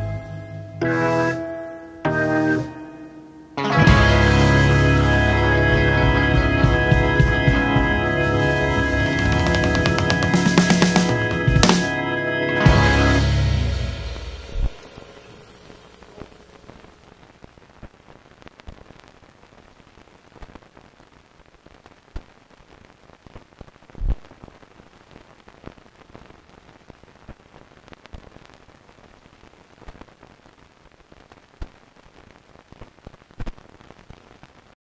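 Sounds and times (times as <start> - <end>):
steady hiss: 13.2 - 34.8
crackles and pops: 13.8 - 34.8.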